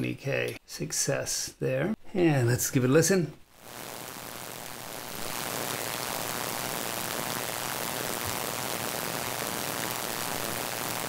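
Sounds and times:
steady electronic hiss: 0:03.4 - 0:11.0.

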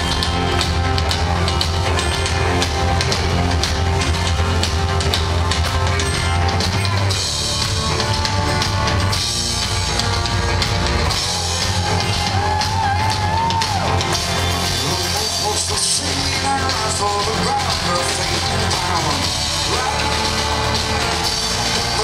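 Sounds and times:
heavy drumming: 0:00.0 - 0:22.0
rock band playing: 0:00.0 - 0:22.0.

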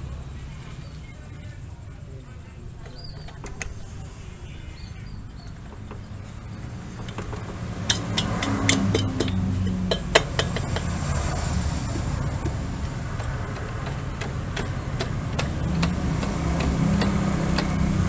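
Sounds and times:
sharp metallic clinks: 0:07.8 - 0:11.0.

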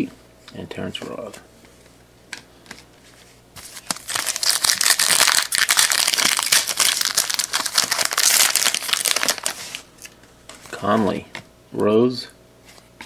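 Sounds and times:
foil wrapper tearing and crinkling: 0:03.6 - 0:09.9.

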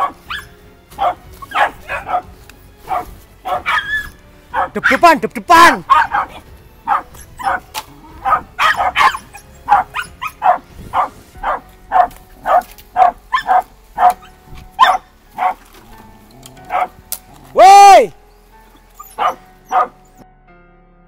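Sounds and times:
dog barking sharply: 0:01.0 - 0:02.3, 0:02.9 - 0:05.0, 0:05.9 - 0:07.6, 0:08.2 - 0:15.6, 0:16.7 - 0:16.9, 0:19.2 - 0:20.0.

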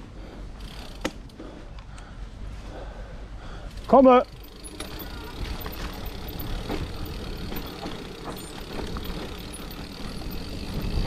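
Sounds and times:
bike knocks and rattles: 0:03.7 - 0:11.0
tyres rolling over dirt: 0:03.8 - 0:11.0.

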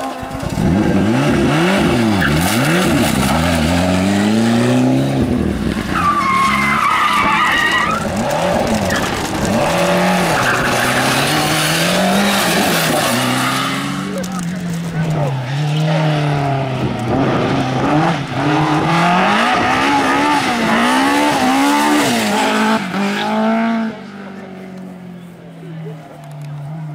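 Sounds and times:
rally car engine revving: 0:00.0 - 0:26.9
tyres squealing: 0:05.9 - 0:14.8.

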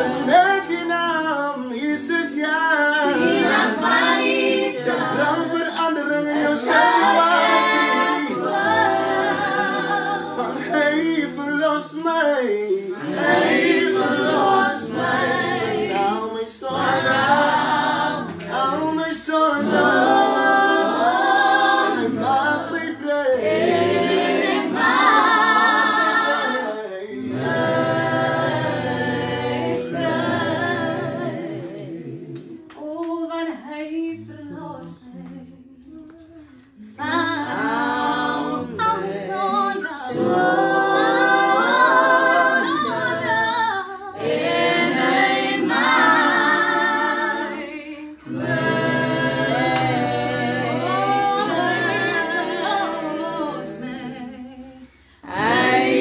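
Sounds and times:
voices singing gospel a cappella: 0:00.0 - 0:56.0.

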